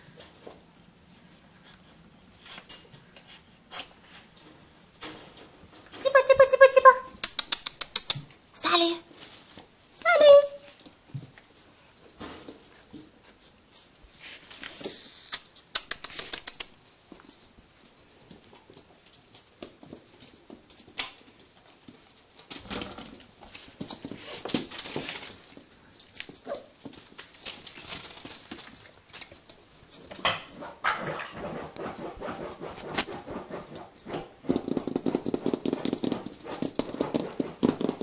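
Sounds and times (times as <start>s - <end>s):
sharp clicks: 7.2s - 8.3s, 14.5s - 16.8s
scratching and rustling on fabric: 10.7s - 14.9s
puppy noises: 14.2s - 16.9s, 18.2s - 38.0s.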